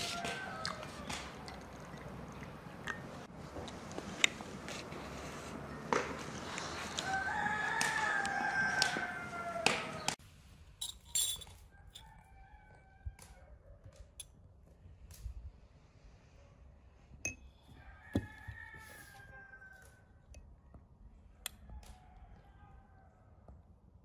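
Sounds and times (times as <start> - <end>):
rooster crowing: 0.0 - 1.3, 6.9 - 10.2, 17.7 - 20.1.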